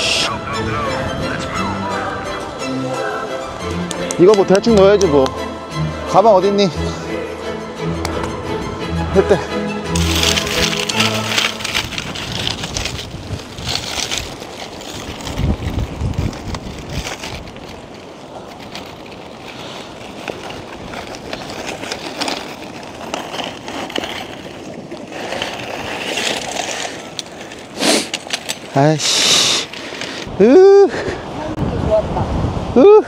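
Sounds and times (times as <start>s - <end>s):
wind buffeting microphone: 0.0s - 2.7s, 8.0s - 33.0s
tent fabric rustling and flapping: 9.9s - 30.3s.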